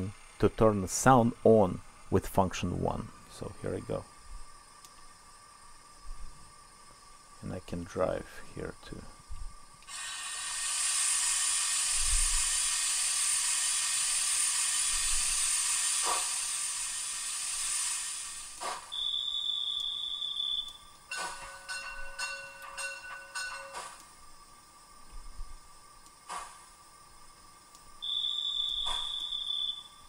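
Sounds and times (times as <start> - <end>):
hiss from small speaker: 0.0 - 21.4, 23.6 - 30.0
high steady tone: 19.0 - 24.0
sharp clicks: 19.7 - 20.0.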